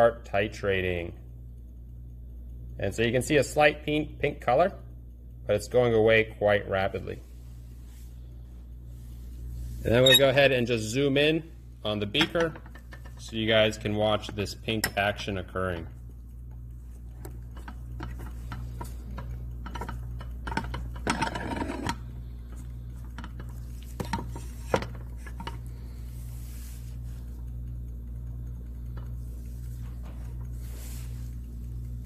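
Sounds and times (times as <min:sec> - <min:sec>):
stir plate humming: 0:07.3 - 0:32.0.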